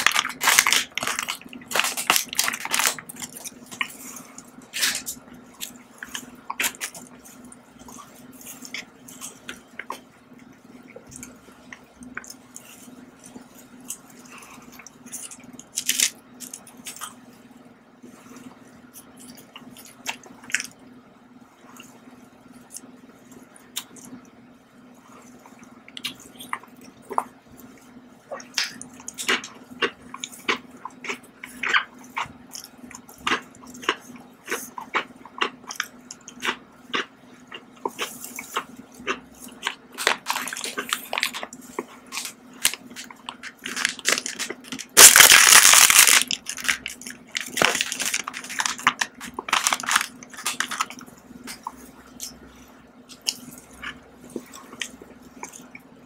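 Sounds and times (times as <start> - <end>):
packaging rustle: 0.0 - 3.5, 42.2 - 51.0
steady low hum: 0.0 - 56.0
close chewing mouth sounds: 25.2 - 56.0.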